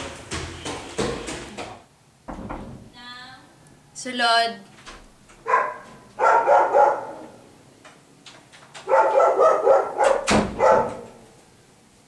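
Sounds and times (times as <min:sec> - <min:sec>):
dog barking: 0:05.4 - 0:07.4, 0:08.8 - 0:11.3.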